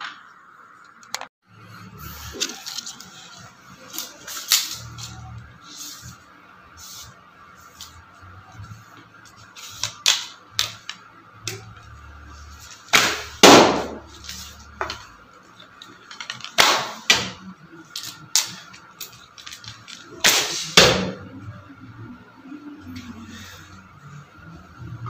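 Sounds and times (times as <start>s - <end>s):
arrow striking target: 12.9s - 14.0s.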